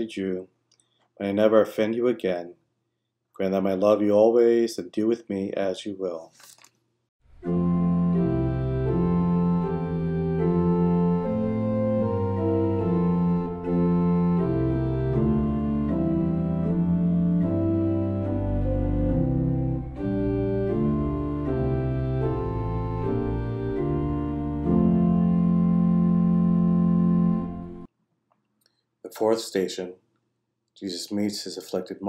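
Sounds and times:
organ playing slow chords: 7.3 - 27.9.

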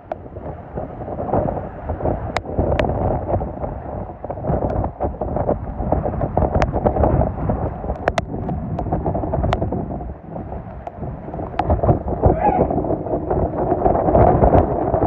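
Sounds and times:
strong wind buffeting microphone: 0.0 - 15.0.

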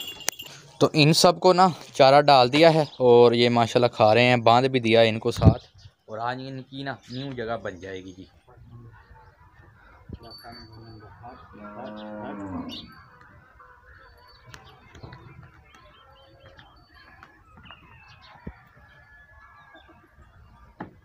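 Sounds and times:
chickens clucking: 8.0 - 21.0
cow mooing: 11.5 - 13.0.

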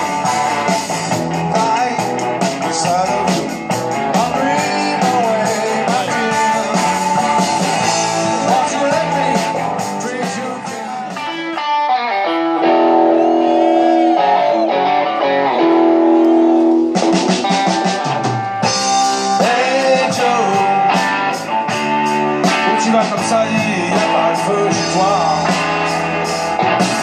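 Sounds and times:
electric guitar lead bending notes: 0.0 - 27.0
rock band playing: 0.0 - 27.0.

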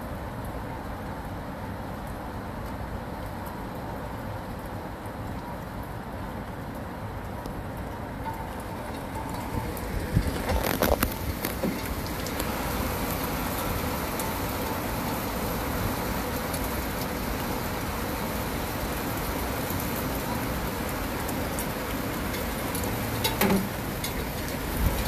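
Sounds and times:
distant city traffic: 0.0 - 25.0
heavy rain hissing: 8.6 - 25.0.

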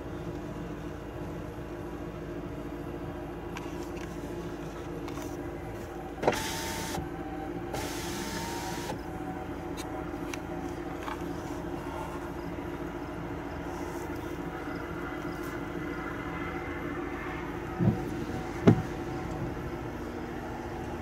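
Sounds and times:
car idling hum: 0.0 - 21.0
power window motor whine: 5.8 - 9.5.

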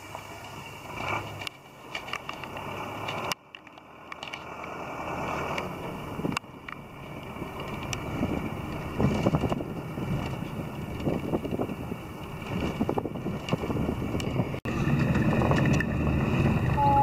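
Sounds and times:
wind buffeting microphone: 5.3 - 17.0.

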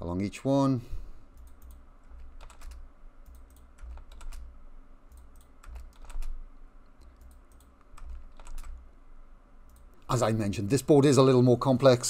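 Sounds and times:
keyboard keys clicking: 1.4 - 4.5, 5.1 - 6.4, 7.0 - 8.8.

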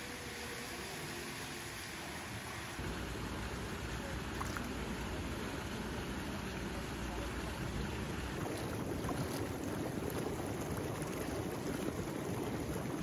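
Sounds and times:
water jets pouring: 0.0 - 13.0
water rushing and splashing: 0.0 - 13.0
water lapping: 7.5 - 13.0.

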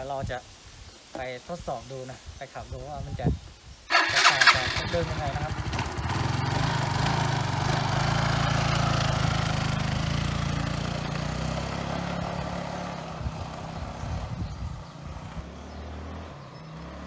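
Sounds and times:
scooter engine pulling away: 3.9 - 17.0.

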